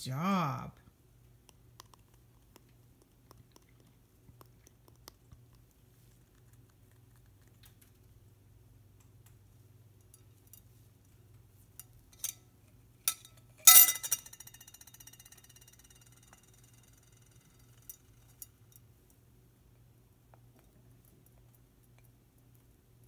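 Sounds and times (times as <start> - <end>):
parrot pecking at glass bowl: 1.4 - 8.2, 13.1 - 18.9
loud ringing glass clink: 13.7 - 14.5.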